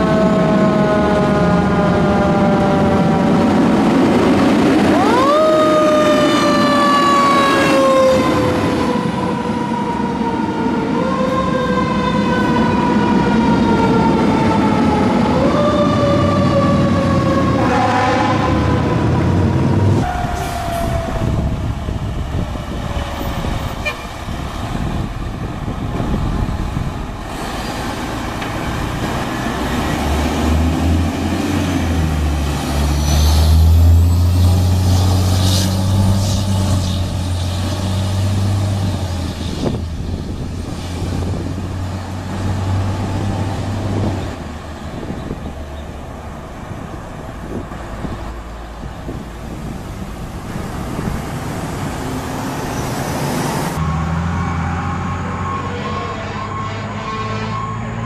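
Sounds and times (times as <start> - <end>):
road traffic noise: 0.0 - 58.0
truck engine: 0.0 - 58.0
siren winding down: 4.8 - 22.1, 53.8 - 58.0
deep truck horn: 15.4 - 21.4, 22.9 - 24.3, 32.1 - 39.8, 53.8 - 58.0.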